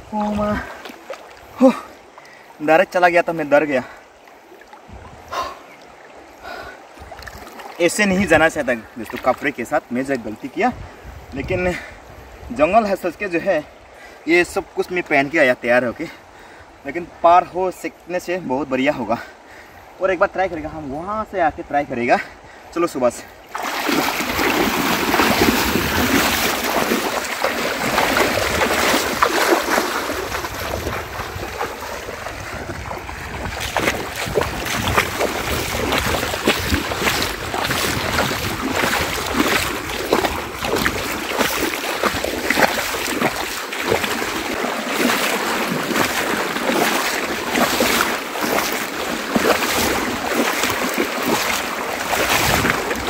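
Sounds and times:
wading through water sloshing: 0.0s - 2.6s, 3.4s - 10.4s, 23.3s - 53.0s
water splashes: 0.0s - 19.9s, 22.2s - 53.0s.

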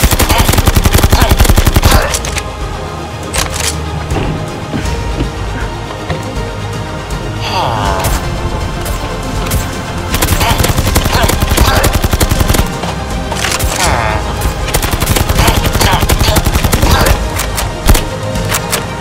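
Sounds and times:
rapid automatic blaster fire: 0.0s - 2.0s, 10.1s - 12.7s, 14.7s - 17.3s
background music: 0.0s - 19.0s.

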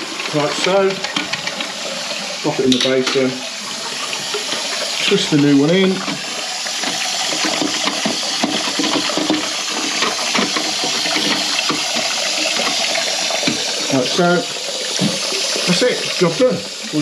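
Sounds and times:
toilet cistern refilling: 0.0s - 17.0s
plastic clicks and knocks: 6.0s - 13.7s.

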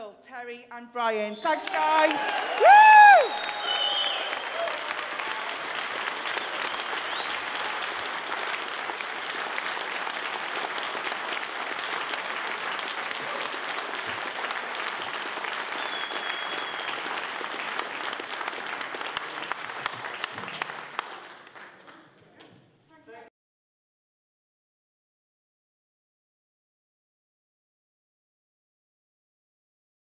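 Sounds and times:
audience applauding: 1.4s - 22.2s.

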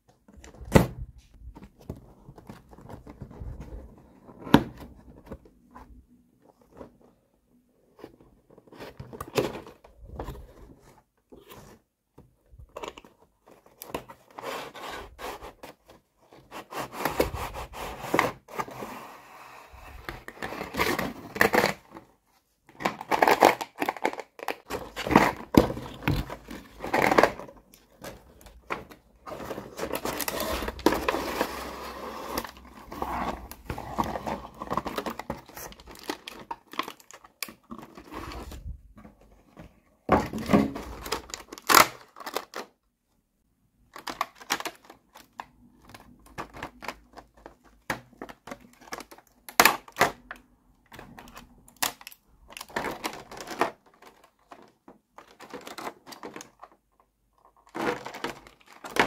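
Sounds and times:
packaging crinkling and rustling: 22.7s - 42.8s, 43.8s - 59.0s.

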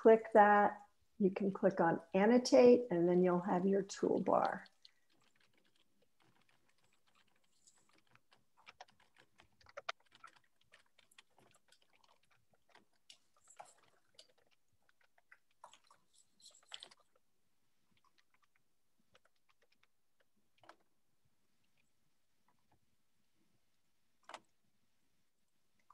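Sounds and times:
keyboard typing: 4.3s - 14.5s.

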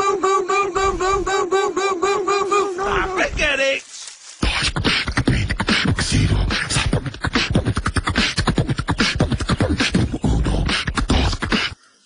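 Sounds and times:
rapid beatboxing mouth sounds: 4.4s - 11.8s.

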